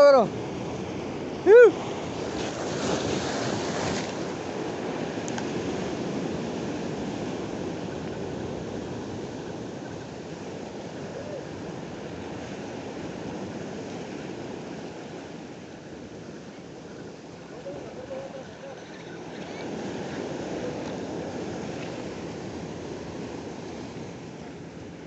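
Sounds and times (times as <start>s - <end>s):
surf breaking on rocks: 0.0s - 7.8s.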